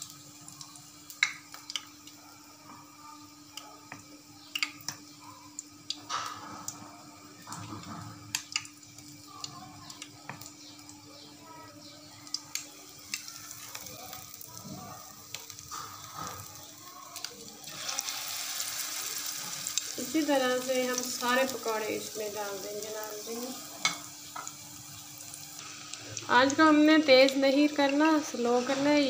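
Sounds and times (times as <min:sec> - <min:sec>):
frying sizzle in hot oil: 0:00.0 - 0:29.0.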